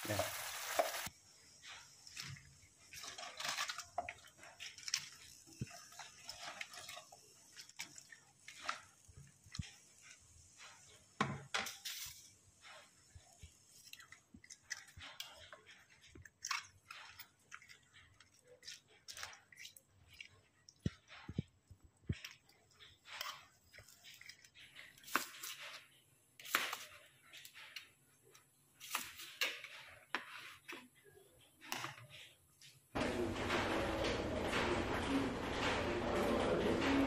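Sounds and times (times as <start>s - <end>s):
spoon stirring cabbage in pan: 0.0s - 33.4s.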